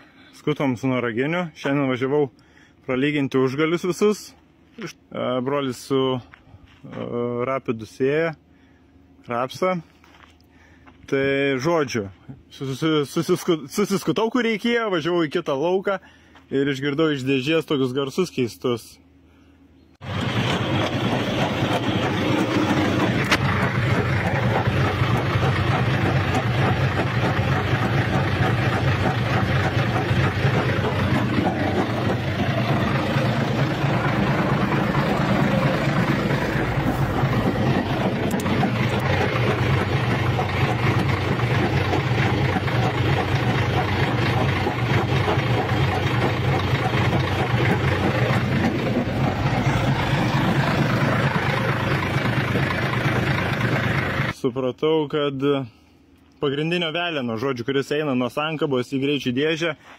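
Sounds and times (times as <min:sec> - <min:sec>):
gearbox noise: 0:20.0 - 0:54.3
tractor running: 0:20.0 - 0:54.4.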